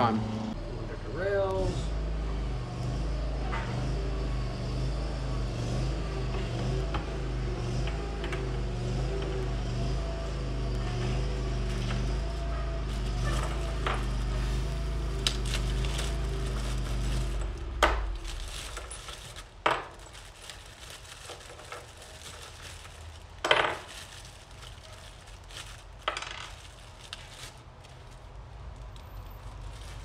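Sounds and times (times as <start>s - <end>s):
low mechanical hum: 0.0s - 30.0s
plastic bag crinkling: 11.6s - 30.0s.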